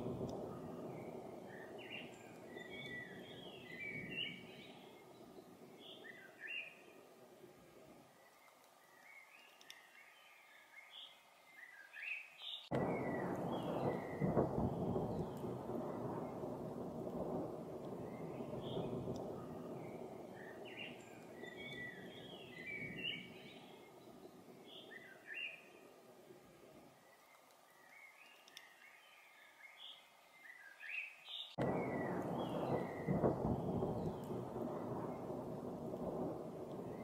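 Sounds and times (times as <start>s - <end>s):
bird chirping: 0.0s - 7.1s, 8.1s - 26.0s, 27.0s - 37.0s
thunder rumbling: 0.0s - 7.1s, 12.7s - 26.3s, 31.6s - 37.0s.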